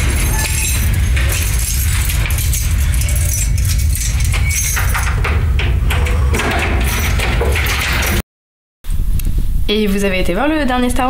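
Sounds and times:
steady low drone: 0.0 - 8.1
keys jangling in a door lock: 0.0 - 8.2.

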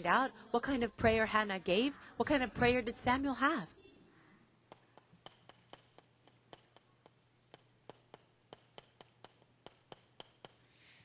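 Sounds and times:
chalk tapping on chalkboard: 4.7 - 10.7.

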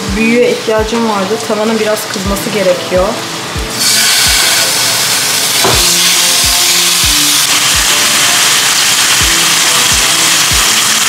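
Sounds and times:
music with thumping beat: 0.0 - 1.1, 2.2 - 4.6, 5.4 - 11.0
meat sizzling in hot oil: 3.6 - 11.0.

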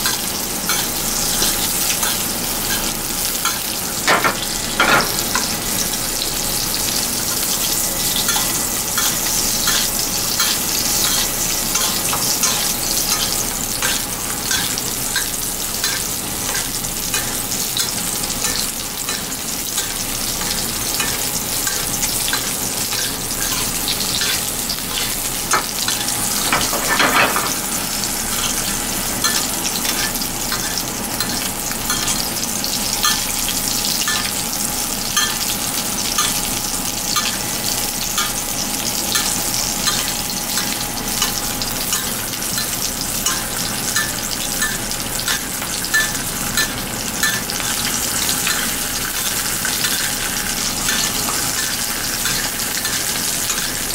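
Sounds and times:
oil sizzling in a pan: 0.0 - 53.9
spoon basting oil: 8.2 - 27.2.

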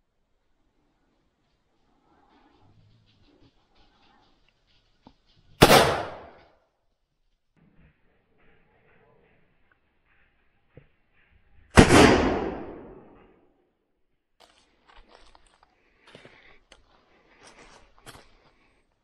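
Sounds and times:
loud gunshot: 5.6 - 6.4, 11.8 - 13.1.

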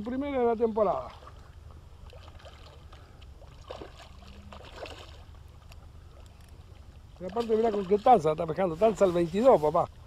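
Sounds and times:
fish splashing in water: 1.0 - 8.2.

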